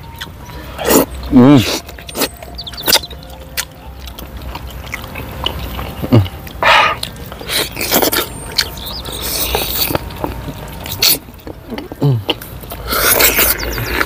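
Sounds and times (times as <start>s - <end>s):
wet chewing: 0.0s - 14.0s
slurping: 4.5s - 14.0s
sniffing: 6.1s - 8.4s, 12.0s - 14.0s.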